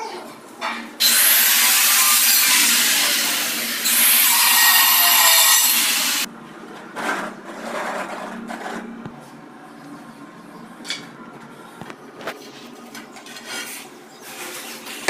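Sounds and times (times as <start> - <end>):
power tool cutting: 1.0 - 6.3.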